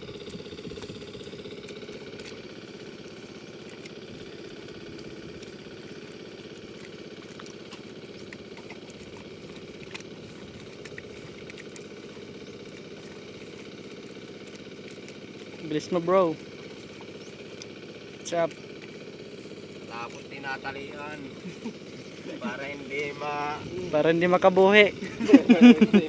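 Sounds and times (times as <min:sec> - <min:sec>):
small engine running: 0:00.0 - 0:26.0.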